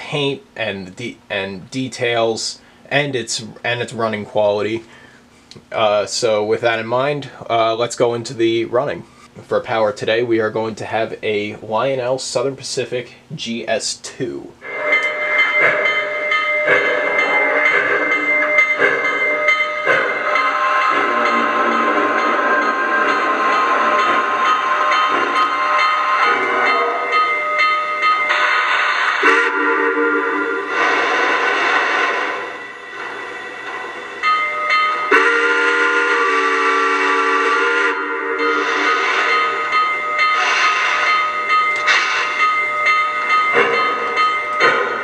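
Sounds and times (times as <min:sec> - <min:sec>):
steam hiss and hum: 0:00.0 - 0:45.0
model steam locomotive chuffing: 0:14.6 - 0:45.0.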